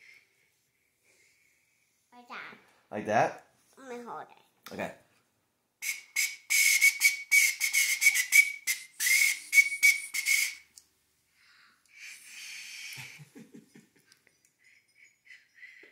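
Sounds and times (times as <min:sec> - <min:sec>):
recorder shrill toots: 0:05.8 - 0:10.6
airy blow into recorder: 0:05.8 - 0:10.7, 0:12.0 - 0:13.2.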